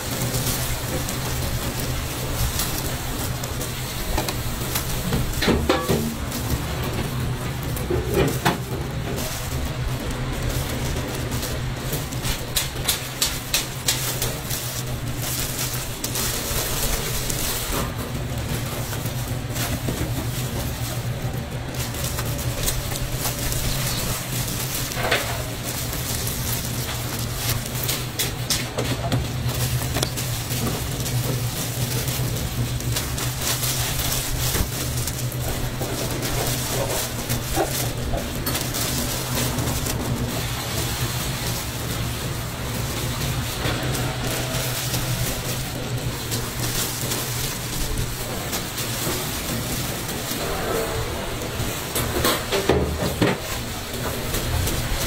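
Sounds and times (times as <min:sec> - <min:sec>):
plastic gloves crinkling: 0:00.0 - 0:55.0
low hum: 0:14.2 - 0:55.0.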